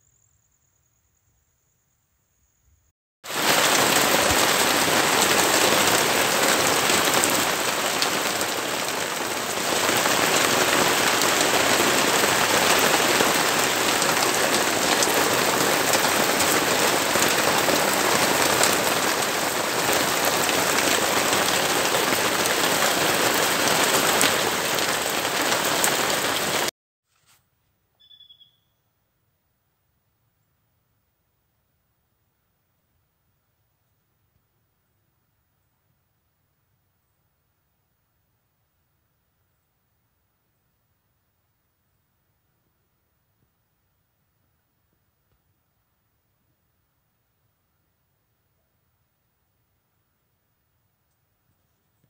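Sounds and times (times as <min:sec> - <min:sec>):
steady rain falling: 0:03.2 - 0:26.7.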